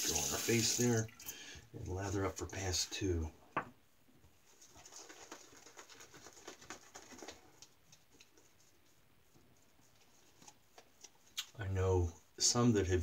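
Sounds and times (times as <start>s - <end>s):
shaving brush lathering soap: 0.0s - 1.0s.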